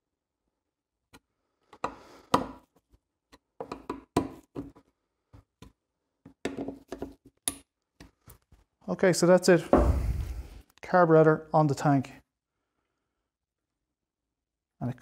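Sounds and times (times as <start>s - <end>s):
screwdriver clicking and knocking: 3.3s - 4.7s.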